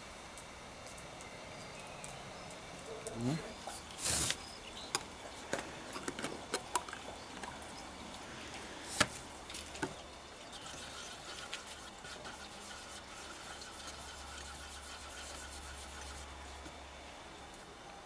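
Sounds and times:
stick mixing paint in metal tin: 0:09.8 - 0:16.6.

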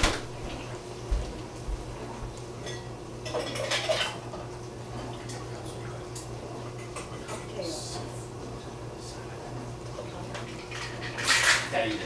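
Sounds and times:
steady low hum: 0:00.0 - 0:12.0
metal pots and utensils clinking: 0:02.6 - 0:04.2, 0:10.4 - 0:12.0
scraping clatter of pots: 0:10.5 - 0:12.0.

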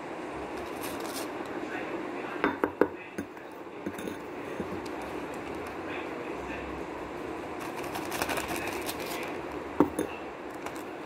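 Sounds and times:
plastic bag rustling: 0:00.6 - 0:01.4, 0:07.6 - 0:09.6, 0:10.5 - 0:11.0.

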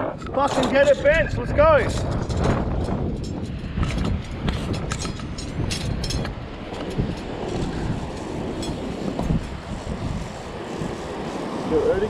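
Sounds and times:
wind buffeting microphone: 0:00.0 - 0:12.0
footsteps on rough stone: 0:01.8 - 0:09.6.

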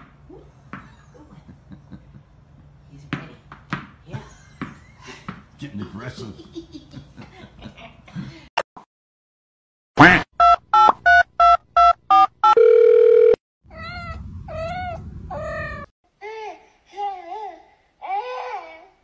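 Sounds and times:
steady dial tone: 0:10.4 - 0:13.4
telephone dialing beeps: 0:10.4 - 0:13.4.

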